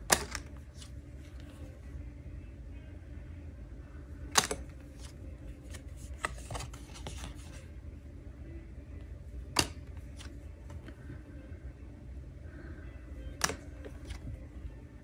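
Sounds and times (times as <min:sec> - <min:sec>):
card snaps: 0:00.0 - 0:00.9, 0:04.3 - 0:07.5, 0:09.5 - 0:10.3, 0:13.4 - 0:14.3
cards rustling and sliding: 0:00.0 - 0:01.7, 0:04.3 - 0:07.7, 0:09.5 - 0:11.0, 0:13.4 - 0:14.5
low steady hum: 0:00.0 - 0:15.0.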